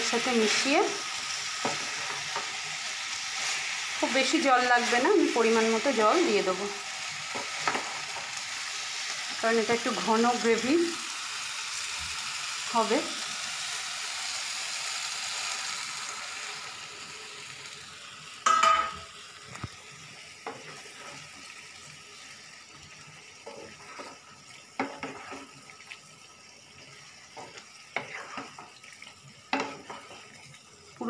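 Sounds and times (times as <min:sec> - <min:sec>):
curry sizzling in a frying pan: 0:00.0 - 0:31.0
stirring scrapes and taps: 0:01.6 - 0:02.8, 0:20.4 - 0:21.4, 0:22.9 - 0:26.1, 0:26.8 - 0:30.6
spatula clanking against pan: 0:18.4 - 0:19.0, 0:29.5 - 0:30.1.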